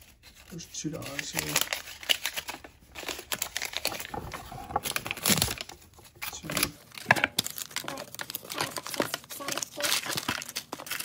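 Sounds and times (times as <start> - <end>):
paper bills crinkling: 0.0 - 11.0
cardboard box rustling: 3.0 - 11.0.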